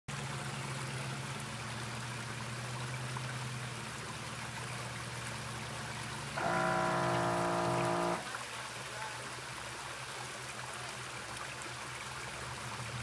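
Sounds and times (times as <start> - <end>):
water trickling over rock: 0.1 - 13.0
low steady hum: 6.4 - 8.2.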